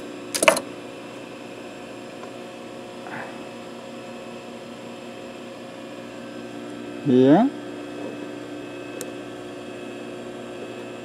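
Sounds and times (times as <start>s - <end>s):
sewing machine electrical hum: 0.0s - 11.0s.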